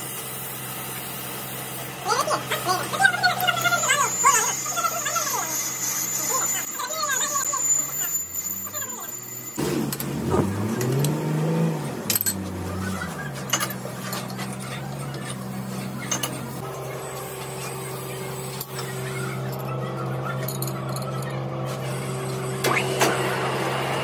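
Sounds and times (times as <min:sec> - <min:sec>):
metallic clinks: 0:20.4 - 0:21.4.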